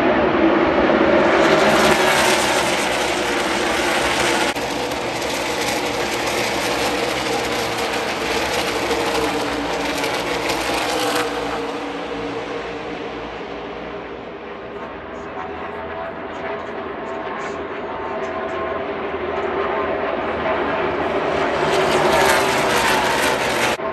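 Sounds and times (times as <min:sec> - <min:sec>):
race car engines roaring: 0:00.0 - 0:23.9.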